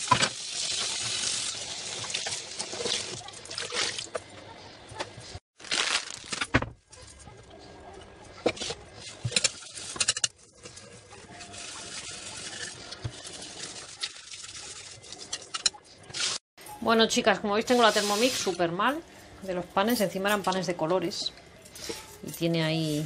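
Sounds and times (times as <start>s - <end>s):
pots and pans clattering in sink: 8.4s - 15.8s.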